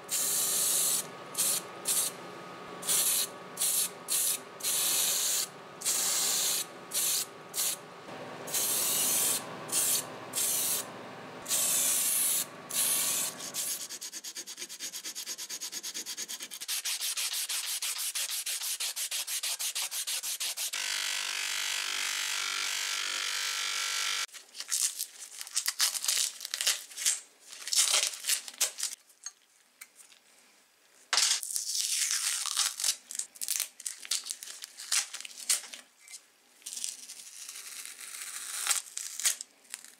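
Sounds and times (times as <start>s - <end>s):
aerosol spray hissing: 0.1s - 2.2s, 2.8s - 7.8s, 8.5s - 13.9s
low steady hum: 0.1s - 13.8s
sandpaper rubbing on metal: 11.6s - 20.8s
masking tape peeling and crumpling: 24.3s - 29.0s, 31.4s - 39.9s.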